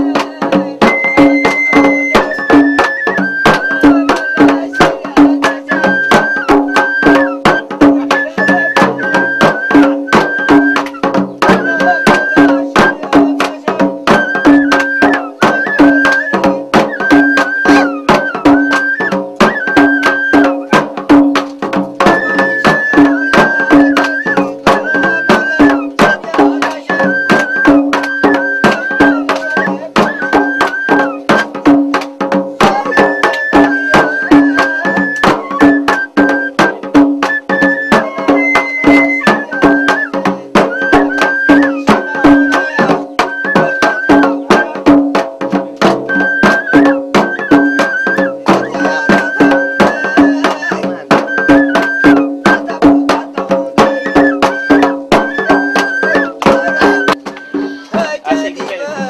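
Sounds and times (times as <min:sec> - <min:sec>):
high repeated melody: 0:00.0 - 0:32.0, 0:32.6 - 0:45.2, 0:45.8 - 0:58.0
sharp percussive clicks: 0:10.1 - 0:11.6, 0:21.3 - 0:22.2, 0:25.6 - 0:34.0.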